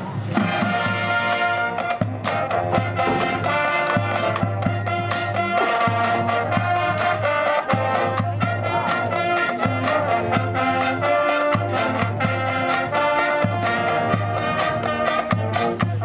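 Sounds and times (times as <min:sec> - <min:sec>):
brass chords: 0:00.0 - 0:16.0
sharp percussion hits: 0:00.0 - 0:16.0.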